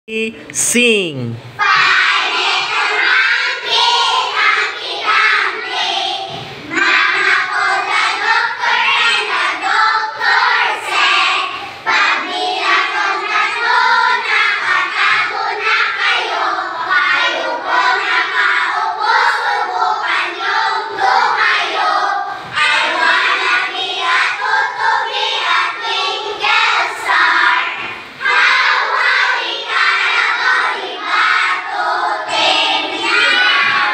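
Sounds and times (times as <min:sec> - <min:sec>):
children singing together: 0:01.5 - 0:33.9.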